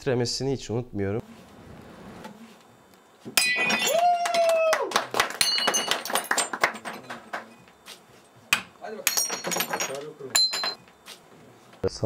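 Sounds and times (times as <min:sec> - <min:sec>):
ceramic plate smashing: 0:03.3 - 0:03.9, 0:05.3 - 0:07.5, 0:09.0 - 0:10.8
shards clattering: 0:03.4 - 0:03.9, 0:09.0 - 0:10.8.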